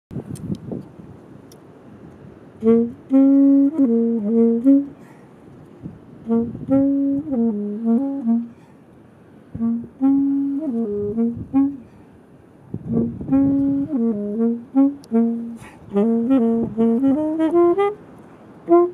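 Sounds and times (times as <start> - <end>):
solo saxophone phrase: 2.6 - 5.2, 5.9 - 8.7, 9.6 - 12.0, 12.8 - 18.9.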